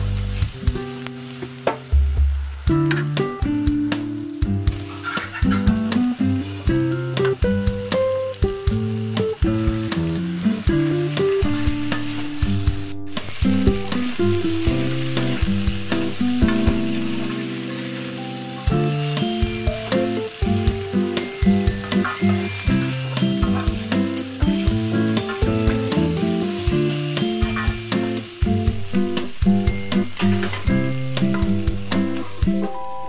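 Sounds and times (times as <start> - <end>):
chicken sizzling in a wok: 0.0 - 33.0
instrumental background music: 0.0 - 33.0
metal spatula scraping a pan: 4.8 - 5.6.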